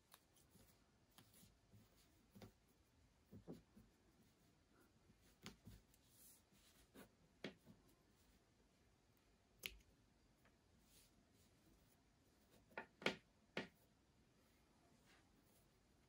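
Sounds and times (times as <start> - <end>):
soft clicks and taps on tabletop: 7.4 - 7.8, 12.5 - 13.9.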